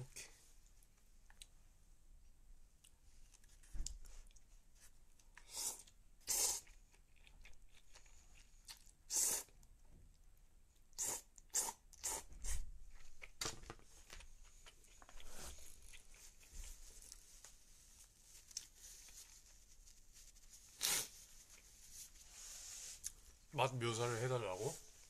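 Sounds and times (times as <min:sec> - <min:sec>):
chewing: 0:05.3 - 0:10.3, 0:14.4 - 0:17.3
noodles being slurped: 0:05.4 - 0:07.0
paper tissue rustling: 0:15.3 - 0:23.4.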